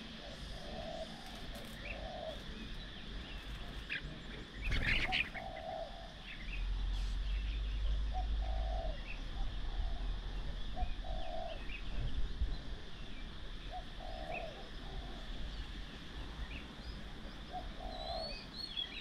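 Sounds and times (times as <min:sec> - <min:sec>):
doves cooing: 0:00.0 - 0:07.1, 0:07.8 - 0:12.0, 0:13.7 - 0:15.5, 0:17.1 - 0:19.0
small birds chirping: 0:00.0 - 0:19.0.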